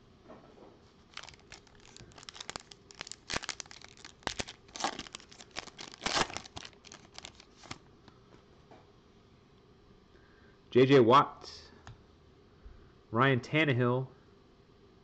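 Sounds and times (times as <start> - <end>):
foil wrapper crinkling and tearing: 1.1 - 7.8.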